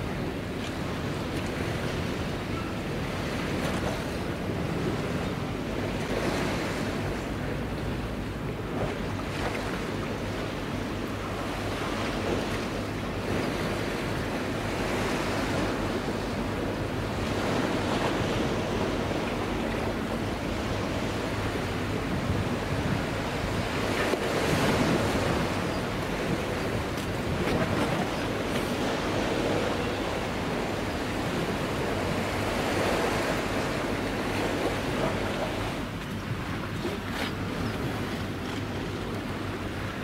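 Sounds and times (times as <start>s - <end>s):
water washing against pier: 0.0s - 40.0s
wind on microphone: 13.2s - 39.3s.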